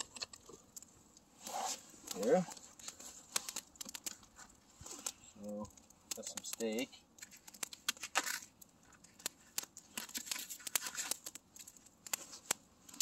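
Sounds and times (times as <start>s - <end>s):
plastic wrapping crinkling and tearing: 1.4s - 5.3s, 5.9s - 13.0s.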